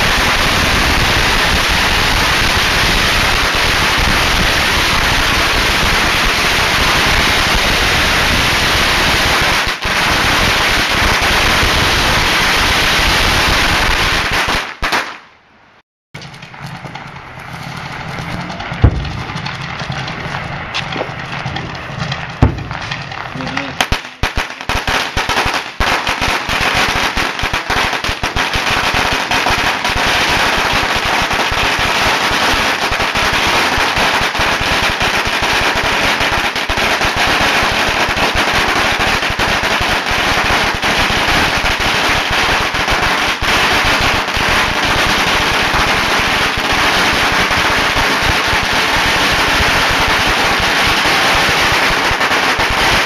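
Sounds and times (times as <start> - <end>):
firecrackers crackling: 0.0 - 15.4, 16.2 - 53.0.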